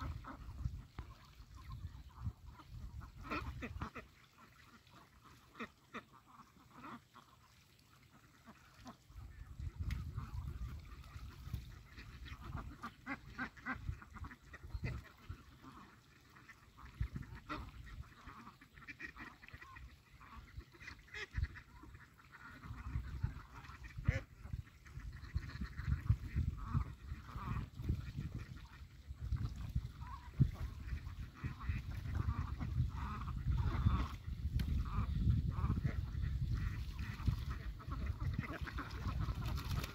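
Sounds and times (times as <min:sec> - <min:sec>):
ducks quacking: 0:00.0 - 0:39.9.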